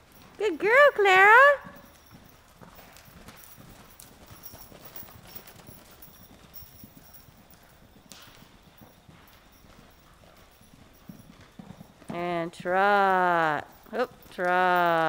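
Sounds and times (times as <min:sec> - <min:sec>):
horse hoofbeats on sand: 0:00.0 - 0:15.0.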